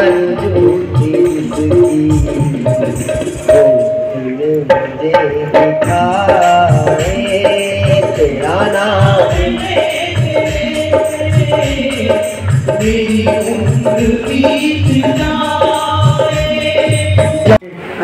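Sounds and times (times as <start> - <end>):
hand drum beat: 0.0 - 17.6
devotional song over loudspeakers: 0.0 - 18.0.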